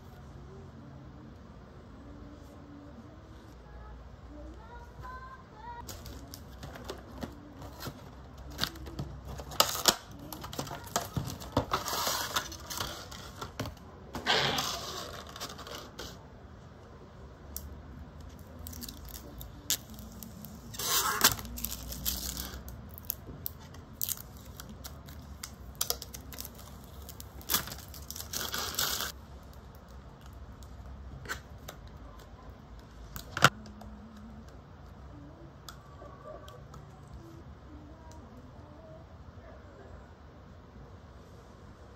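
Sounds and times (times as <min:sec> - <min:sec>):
protective film peeling: 0:14.2 - 0:16.2, 0:18.3 - 0:29.9.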